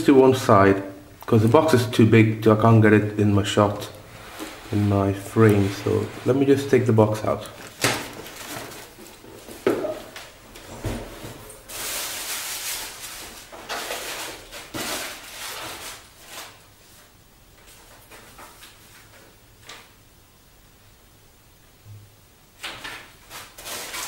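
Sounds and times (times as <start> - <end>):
cardboard scraping and rustling: 4.1 - 16.6, 23.2 - 24.0.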